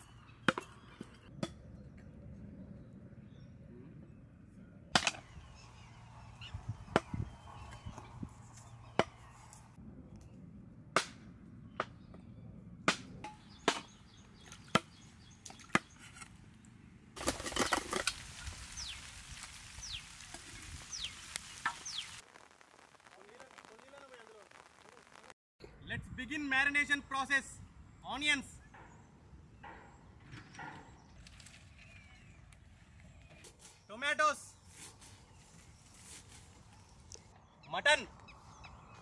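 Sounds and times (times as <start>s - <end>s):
bird chirps: 5.2s - 9.7s, 18.4s - 19.1s, 19.8s - 22.2s
steady hiss: 18.1s - 25.4s.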